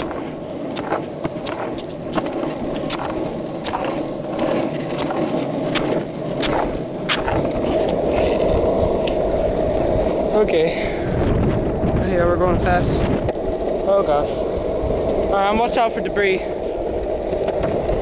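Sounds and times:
longboard wheels rolling on asphalt: 0.0s - 18.0s.

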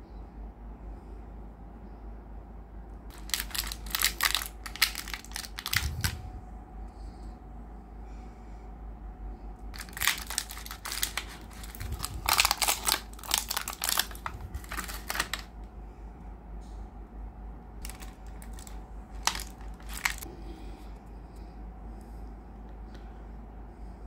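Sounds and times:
packaging crinkling and rustling: 3.1s - 6.3s, 9.8s - 15.5s, 17.8s - 20.3s.

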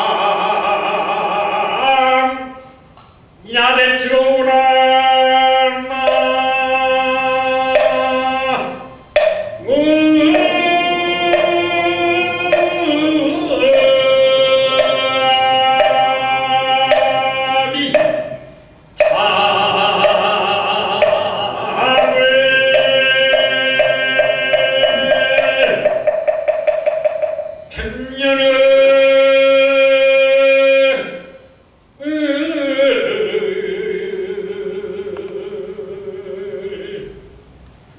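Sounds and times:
group chanting in long notes: 0.0s - 2.7s, 4.4s - 31.4s, 32.0s - 37.3s
steady percussion beat: 5.8s - 28.2s.

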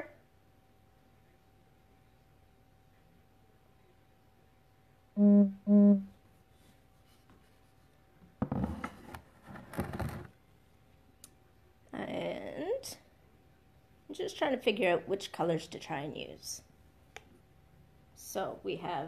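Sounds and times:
low buzzes: 5.2s - 6.2s.

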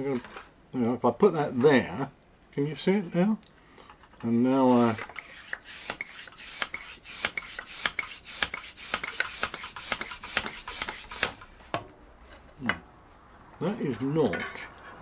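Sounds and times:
hand pump rasping strokes: 4.7s - 11.5s.

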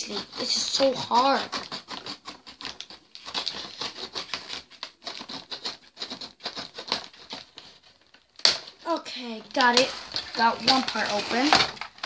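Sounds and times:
knife scraping plastic: 0.0s - 12.0s
packaging rustling: 2.4s - 12.0s.

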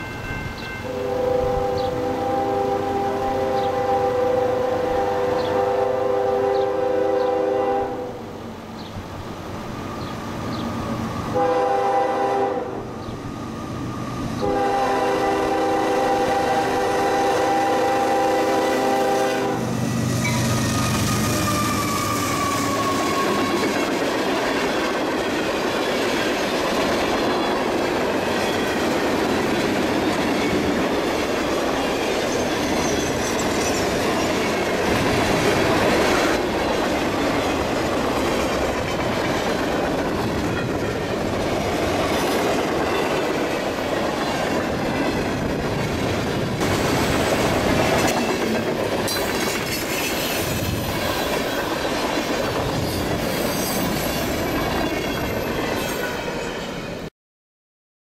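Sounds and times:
train wheels clattering on rails: 20.2s - 56.6s.

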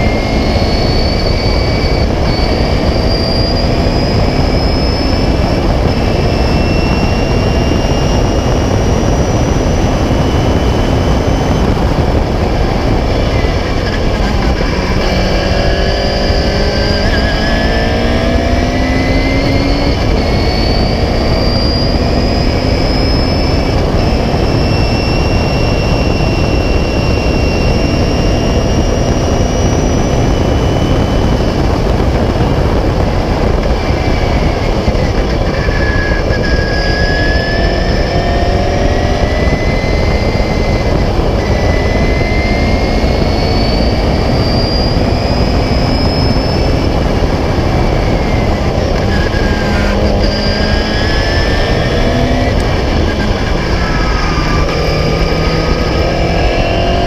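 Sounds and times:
racing car engine: 0.0s - 57.0s
wind noise on microphone: 0.0s - 57.0s.

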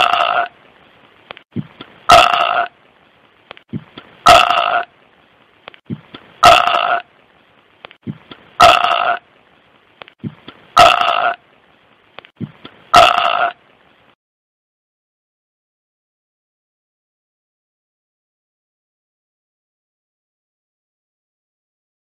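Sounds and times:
person burping: 8.6s - 9.2s, 10.8s - 11.4s, 12.9s - 13.6s
faint clicks: 12.1s - 12.8s.

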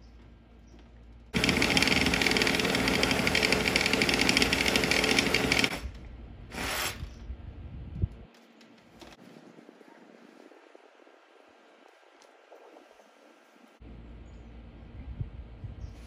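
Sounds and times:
cordless power tool rattling: 1.4s - 6.0s.

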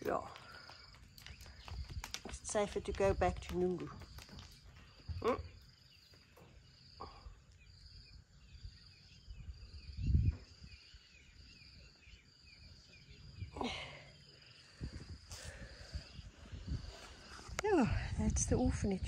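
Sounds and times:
insect chirping: 0.0s - 19.0s
faint bird chirps: 4.9s - 17.4s.

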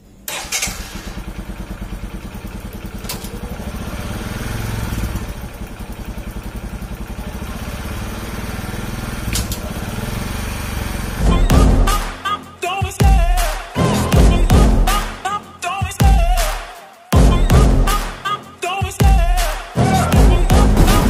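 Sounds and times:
motorcycle engine idling: 0.0s - 11.7s.

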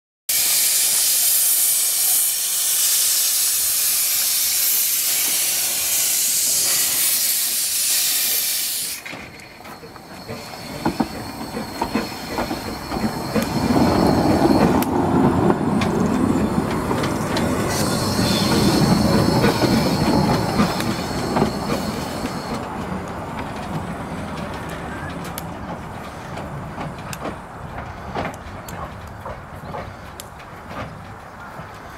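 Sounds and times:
loud steam hiss: 0.3s - 22.6s
steam engine rumbling and clanking: 0.3s - 31.9s.

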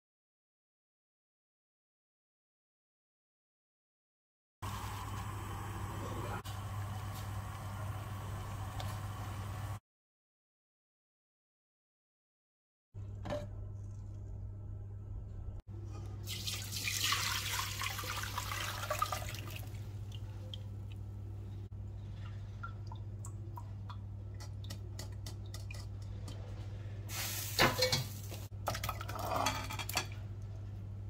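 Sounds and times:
broth pouring and splashing: 16.2s - 20.5s
liquid dripping from sieve: 22.0s - 26.4s.

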